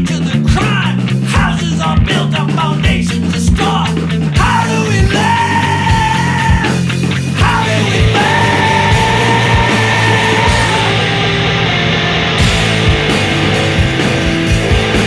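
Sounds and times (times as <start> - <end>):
steady drum beat: 0.0 - 15.0
instrumental background music: 6.6 - 15.0.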